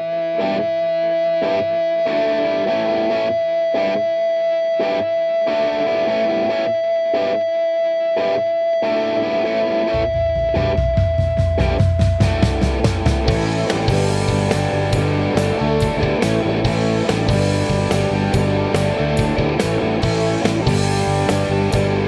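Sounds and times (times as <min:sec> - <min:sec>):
distorted electric guitar: 0:00.0 - 0:22.0
heavy low end: 0:09.9 - 0:22.0.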